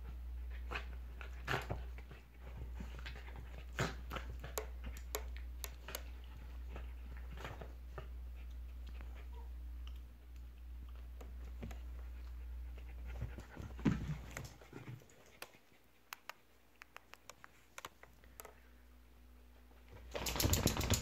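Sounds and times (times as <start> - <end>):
dog panting: 11.5 - 16.3.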